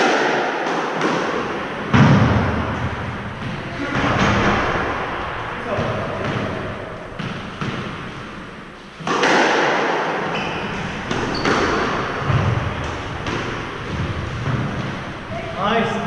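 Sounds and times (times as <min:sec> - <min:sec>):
squash ball knocking: 0:05.8 - 0:15.2
shoes squeaking on wooden floor: 0:10.3 - 0:14.8.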